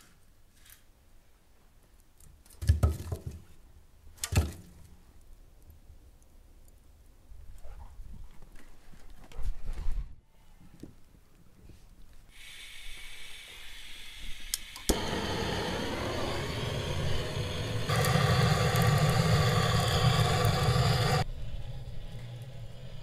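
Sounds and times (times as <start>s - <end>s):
gas burner flame rushing: 12.3s - 23.0s
propane hissing through hose: 12.3s - 23.0s.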